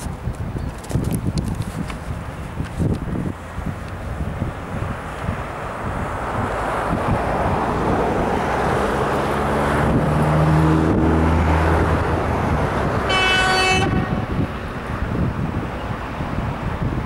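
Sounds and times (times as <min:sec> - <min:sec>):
diesel locomotive rumbling: 0:01.2 - 0:17.0
low horn note: 0:13.1 - 0:14.3.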